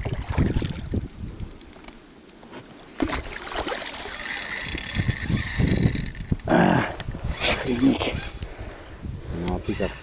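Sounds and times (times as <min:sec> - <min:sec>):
water sloshing and splashing: 0:00.0 - 0:01.1, 0:02.4 - 0:05.6.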